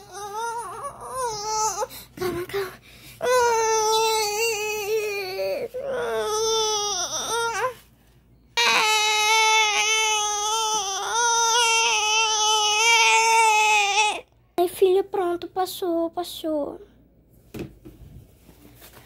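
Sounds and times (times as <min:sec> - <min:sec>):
baby crying: 0:00.0 - 0:02.0, 0:03.2 - 0:07.8, 0:08.6 - 0:14.3.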